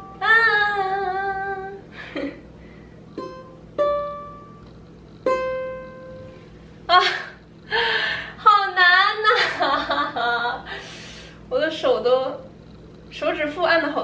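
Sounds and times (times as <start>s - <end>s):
ukulele plucked notes: 3.2s - 4.6s.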